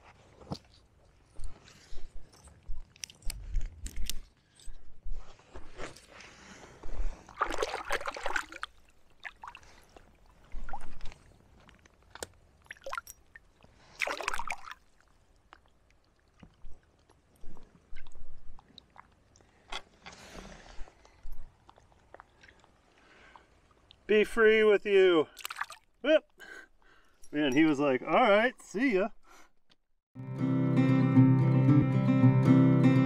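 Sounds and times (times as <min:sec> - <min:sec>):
water splashing and sloshing: 0:05.7 - 0:24.1, 0:25.3 - 0:26.0
water dripping: 0:07.4 - 0:19.6, 0:25.3 - 0:26.0.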